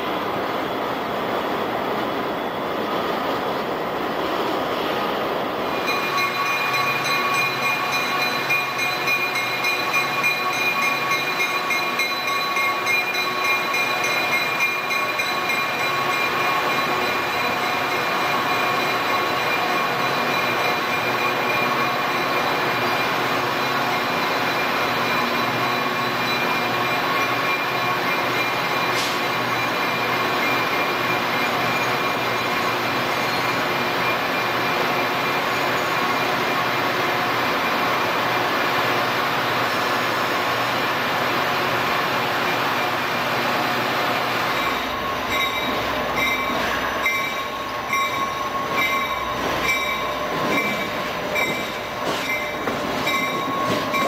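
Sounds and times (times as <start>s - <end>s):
diesel locomotives running: 0.0s - 54.0s
train rumble: 0.0s - 54.0s.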